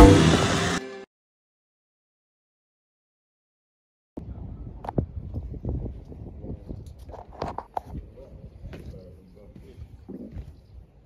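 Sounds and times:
wind rumble on microphone: 4.2 - 11.0.

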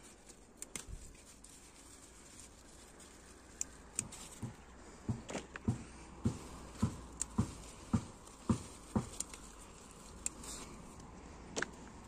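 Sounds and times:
rustling plants: 0.0 - 12.0
soft thuds: 4.0 - 9.4.

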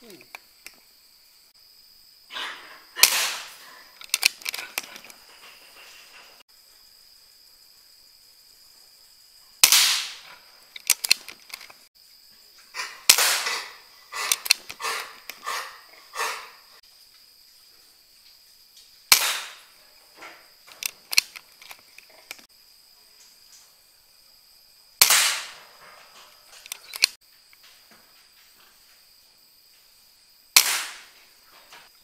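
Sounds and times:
air rifle shot: 3.0 - 3.6, 9.6 - 10.3, 13.1 - 13.8, 19.1 - 19.7, 25.0 - 25.7, 30.6 - 31.2
small clicks and rattles: 3.6 - 6.4, 10.2 - 11.9, 14.2 - 15.5, 20.1 - 22.5, 25.6 - 29.0.

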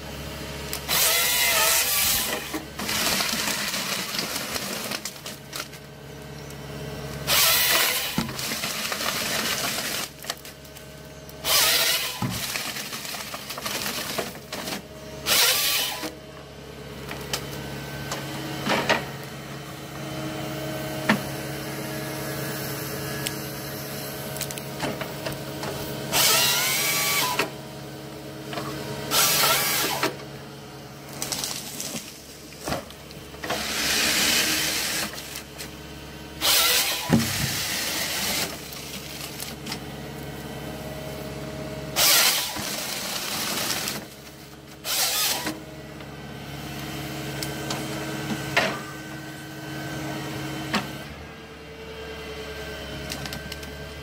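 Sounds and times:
motor-driven machine running: 10.8 - 51.2.

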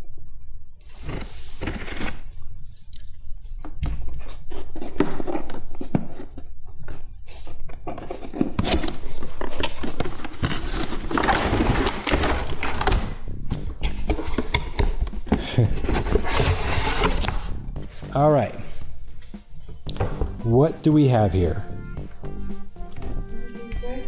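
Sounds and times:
cardboard flaps scraping: 7.3 - 13.2, 13.8 - 18.1.

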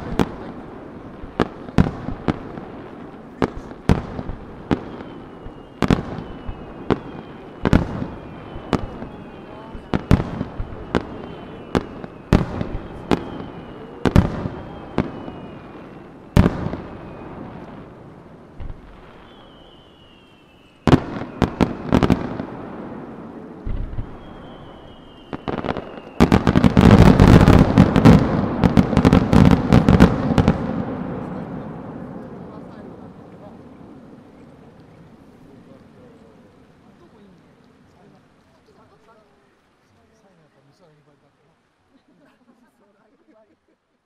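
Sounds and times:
firework bangs: 0.0 - 35.6
firework crackling: 0.0 - 43.6
firework whistles: 3.3 - 17.9, 18.6 - 32.7.

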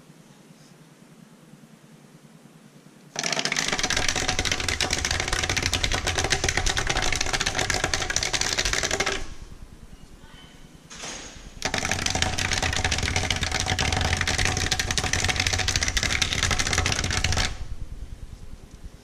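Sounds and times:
drawing machine rattling: 3.2 - 9.5, 10.9 - 17.7.

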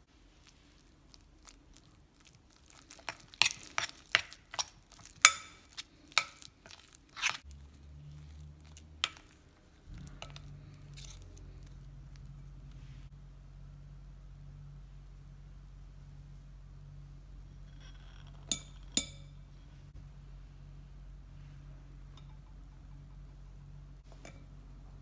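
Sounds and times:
squishy scraping of butter: 0.3 - 12.4
spoon clinking against glass bowl: 18.4 - 19.4.

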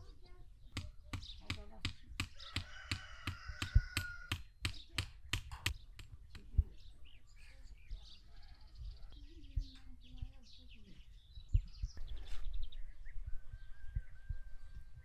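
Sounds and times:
sharp knocks: 0.8 - 6.5.

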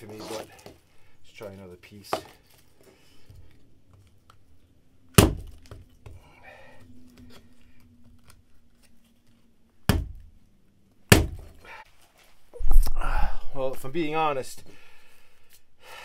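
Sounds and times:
hatchet striking wet wood: 5.1 - 5.8, 9.9 - 10.3, 11.1 - 11.5.

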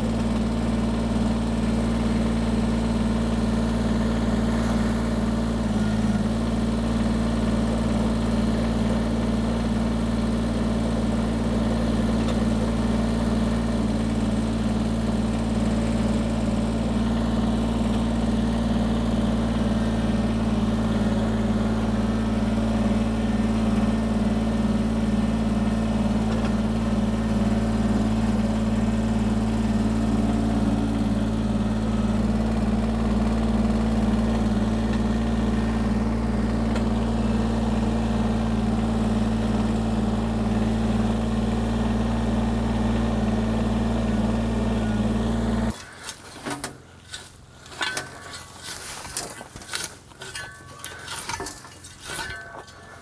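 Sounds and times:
tractor diesel engine running: 0.0 - 53.0.

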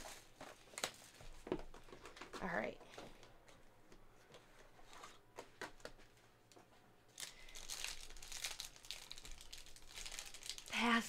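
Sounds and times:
wrapper crinkling and tearing: 7.1 - 11.0.

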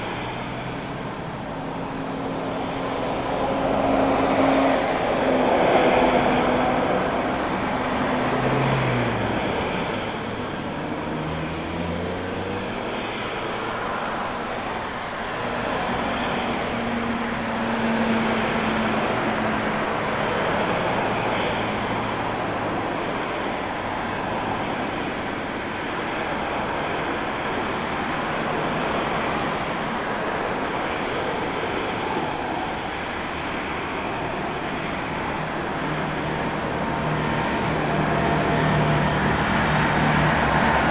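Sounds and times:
road traffic roar: 0.0 - 40.9
vehicle engine rising in pitch: 35.0 - 40.9.

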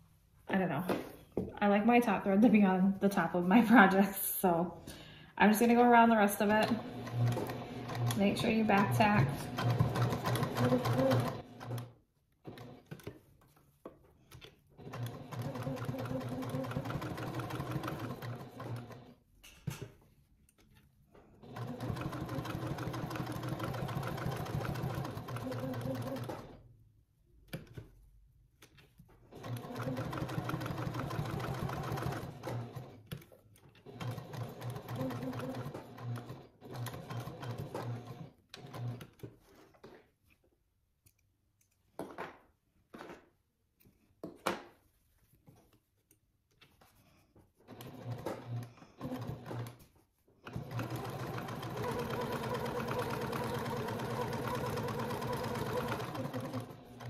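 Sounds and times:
sewing machine stitching: 6.4 - 13.2, 14.4 - 19.2, 21.4 - 26.6, 29.3 - 40.0, 47.6 - 57.0.

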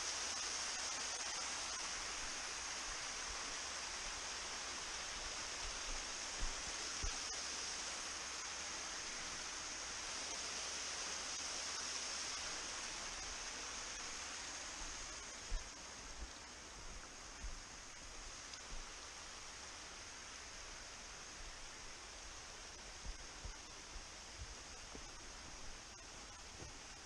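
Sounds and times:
waterfall splashing over rocks: 0.0 - 27.0
soft low thumps: 15.5 - 17.7.

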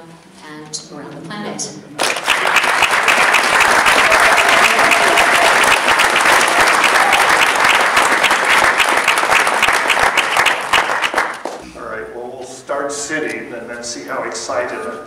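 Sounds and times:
audience applauding: 2.0 - 11.6.

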